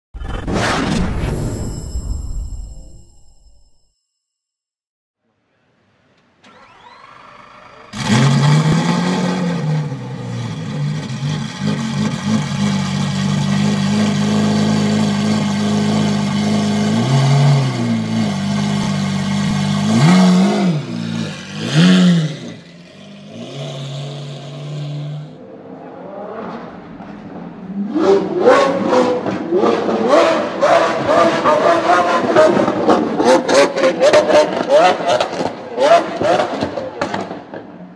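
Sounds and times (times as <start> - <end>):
sports car engine idling and revving: 6.6 - 37.9.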